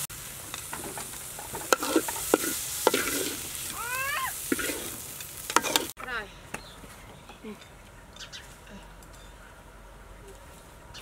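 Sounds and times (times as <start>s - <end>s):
hot pan hissing: 0.0s - 6.0s
metal spatula scraping a wok: 0.6s - 3.7s, 4.4s - 6.0s.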